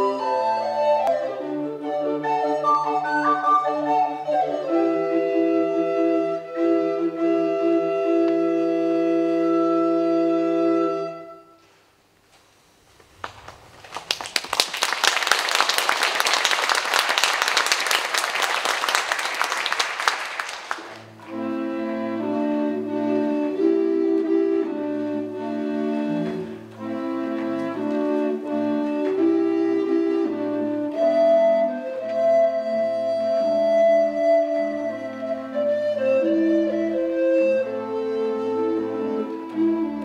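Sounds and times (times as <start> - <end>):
recorder ensemble playing chords: 0.0 - 11.7, 20.7 - 40.0
audience applauding: 13.2 - 21.2.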